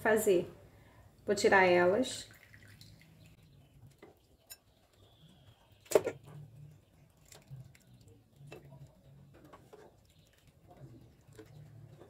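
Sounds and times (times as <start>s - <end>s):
plastic spatula scraping a pot: 8.5s - 12.0s.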